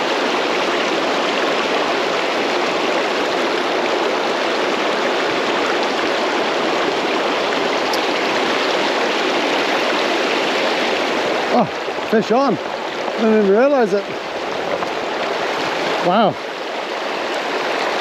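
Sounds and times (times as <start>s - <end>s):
river water rushing: 0.0s - 18.0s.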